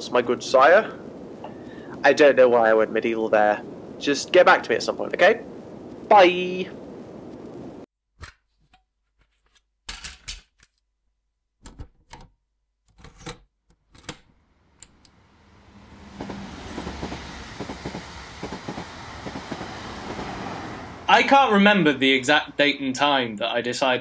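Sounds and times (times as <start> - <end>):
train running on rails: 15.1 - 23.2.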